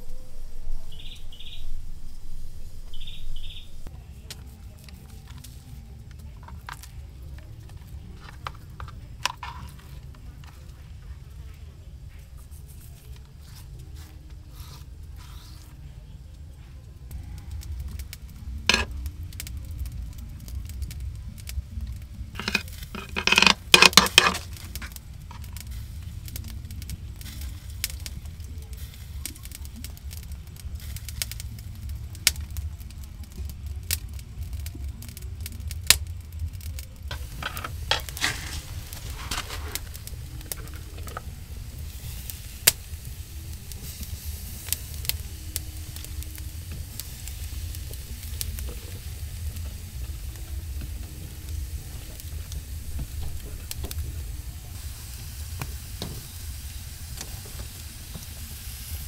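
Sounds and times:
cooking fire sizzling and crackling: 0.0 - 59.0
sharp clicks and clinks: 22.4 - 24.5
clattering: 22.4 - 24.9, 37.1 - 39.9.

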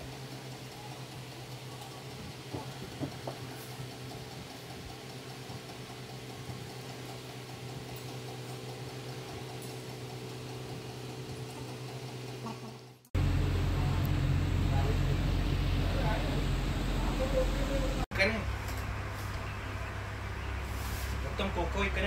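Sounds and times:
boat engine humming: 0.0 - 18.1.

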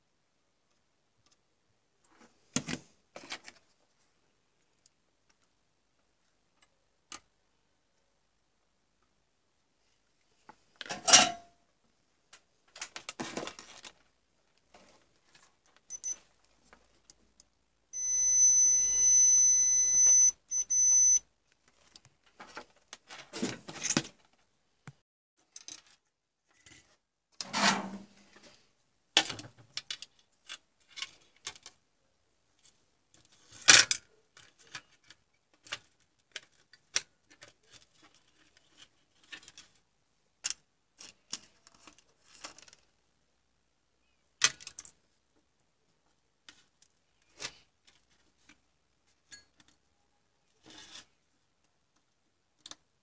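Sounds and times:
high electronic beep: 15.9 - 16.2, 18.0 - 21.2.

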